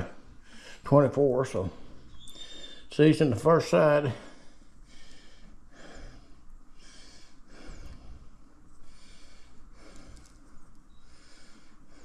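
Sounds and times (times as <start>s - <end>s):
man breathing heavily through nose: 0.0s - 1.0s, 4.1s - 12.0s.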